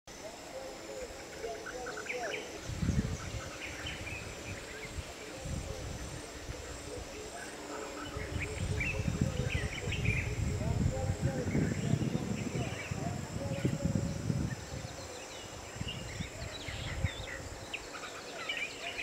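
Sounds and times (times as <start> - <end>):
insects droning: 0.1 - 19.0.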